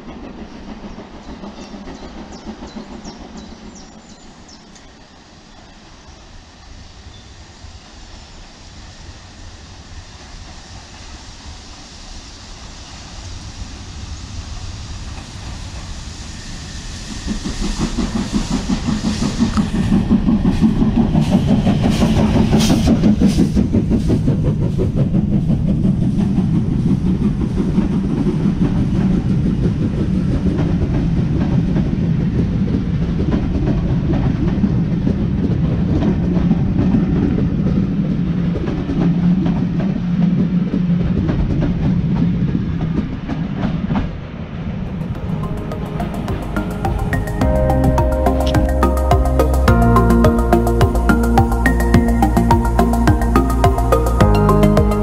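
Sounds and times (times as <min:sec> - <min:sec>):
steam locomotive hissing: 0:00.0 - 0:33.2, 0:44.8 - 0:55.0.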